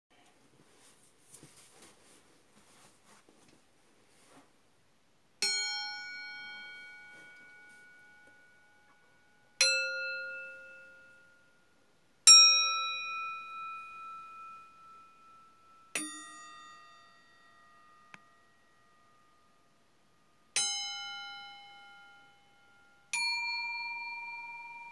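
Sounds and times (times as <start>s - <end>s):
steel bowls struck ringing: 5.4s - 11.5s, 12.3s - 19.4s.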